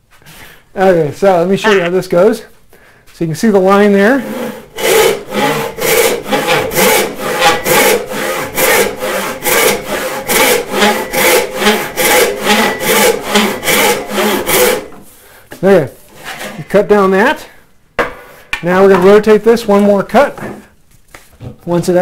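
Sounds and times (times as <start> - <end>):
saw rasping through wood: 4.1 - 15.0.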